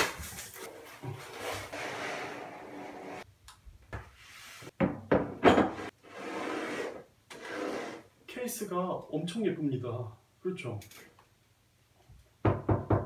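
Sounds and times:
paper and cardboard rustling: 0.0 - 1.8.

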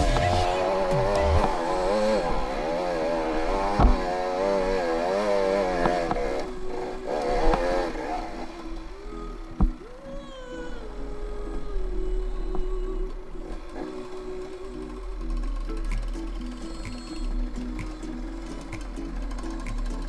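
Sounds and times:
dirt bike engine revving: 0.0 - 9.0
sharp knocks: 3.8 - 4.0.

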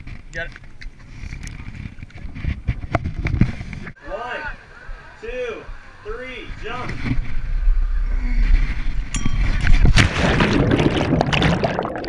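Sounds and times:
wind buffeting camera: 0.0 - 4.0
churning water: 9.1 - 12.0
splash into water: 9.8 - 12.0.

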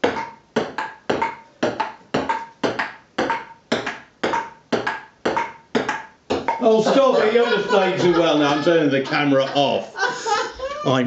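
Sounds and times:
table tennis ball clicking: 0.0 - 6.6.

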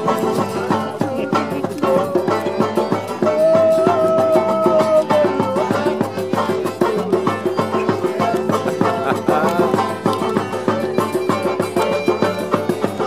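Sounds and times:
upbeat instrumental music: 0.0 - 13.0.

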